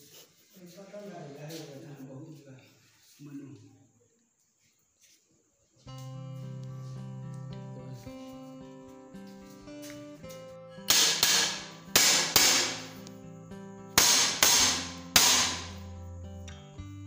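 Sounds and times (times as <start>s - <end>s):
guitar music: 5.9s - 17.0s
hammer ringing on steel grill: 10.9s - 13.0s, 14.0s - 15.8s.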